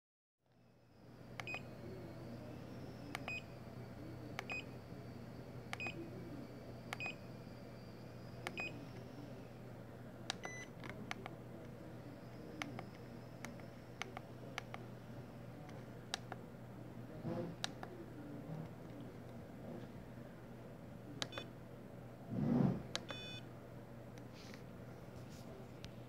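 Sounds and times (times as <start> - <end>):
low steady hum: 0.5 - 26.0
push-buttons clicking: 21.2 - 21.5.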